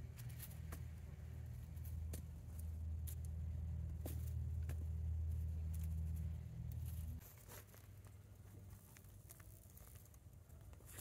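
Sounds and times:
steady low rumble: 0.0 - 7.2
dry mulch rustling and crackling: 0.0 - 11.0.

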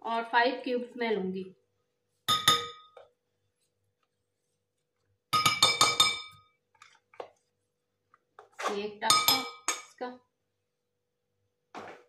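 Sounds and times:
metal spoon clinking glass bowl: 2.3 - 3.0, 5.4 - 6.4, 9.1 - 10.0.

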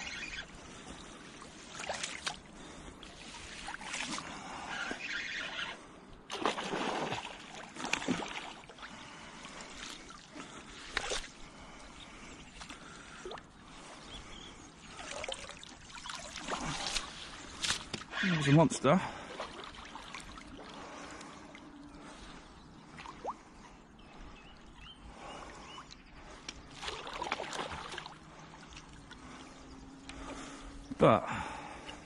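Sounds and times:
water splashing and sloshing: 0.0 - 32.0.

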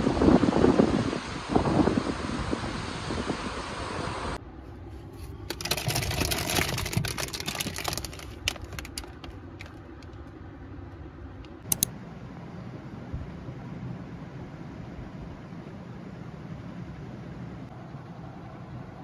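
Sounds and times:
plastic packets crinkling: 5.4 - 10.0
sharp clicks: 11.4 - 11.9.

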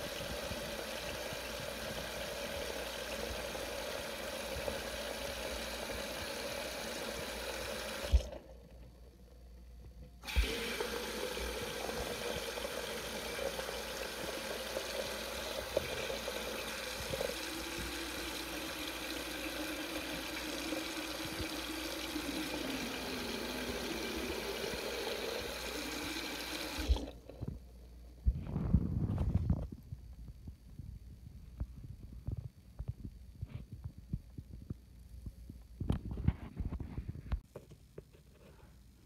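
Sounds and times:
water splashing into sink: 10.3 - 27.2.

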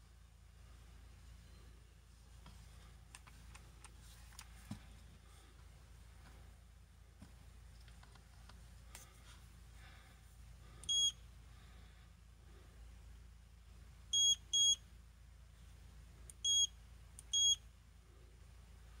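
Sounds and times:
electronic control panel beeps: 10.8 - 11.2, 14.2 - 14.8, 16.3 - 17.6.

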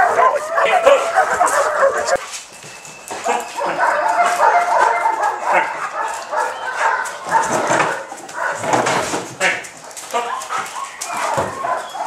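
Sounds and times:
dogs barking and yelping: 0.0 - 12.0.

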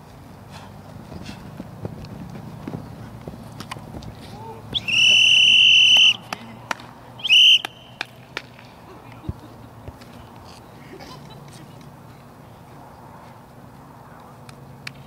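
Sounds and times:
referee's whistle blasts: 4.7 - 6.2, 7.2 - 8.0.

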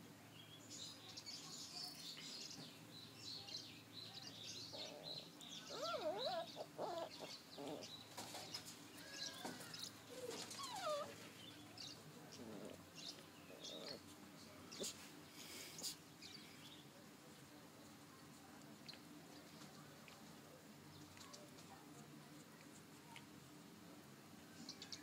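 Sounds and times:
small birds chirping: 0.2 - 23.4, 24.4 - 25.0
puppies whining yelps: 5.7 - 7.8, 10.1 - 11.2.

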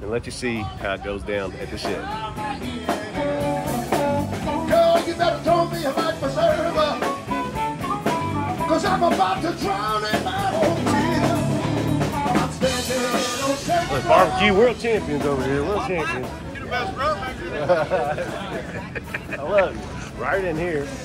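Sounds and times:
blues band music: 0.0 - 21.0
guitar: 0.0 - 21.0
drum kit: 1.6 - 17.0
person singing: 1.7 - 7.5, 8.4 - 14.6.

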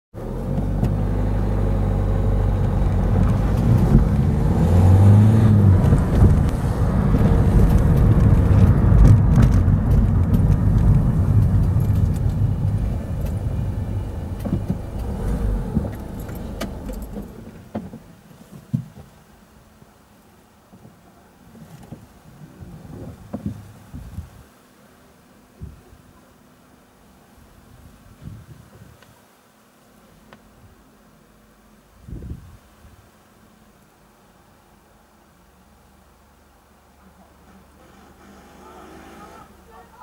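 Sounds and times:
car engine and road noise: 0.1 - 18.2, 37.4 - 40.0.

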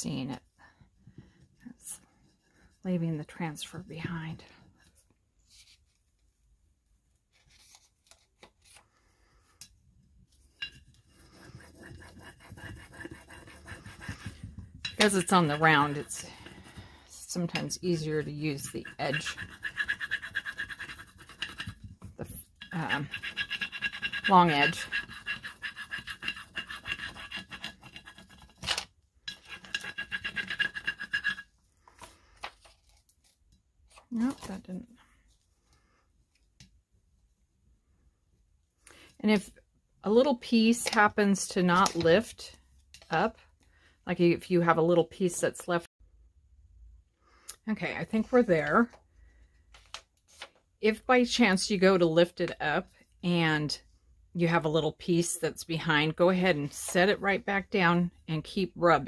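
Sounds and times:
scratchy rubbing on glass: 10.6 - 16.8, 18.0 - 28.5, 29.3 - 31.5.

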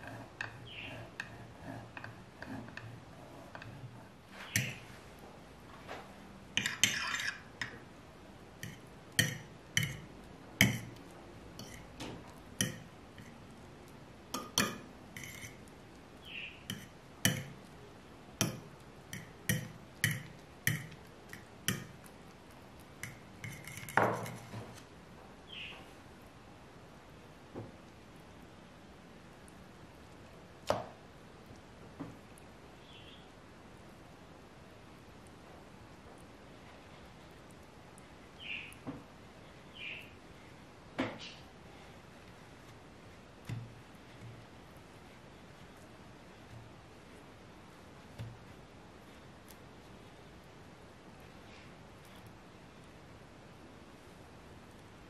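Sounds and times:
cheese grating on metal grater: 6.6 - 7.5.

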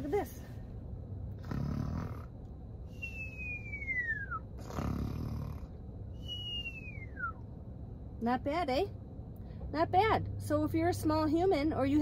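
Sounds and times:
woman fake-snoring: 1.4 - 2.3, 4.6 - 5.8
falling whistle on exhale: 2.9 - 4.4, 6.2 - 7.4.

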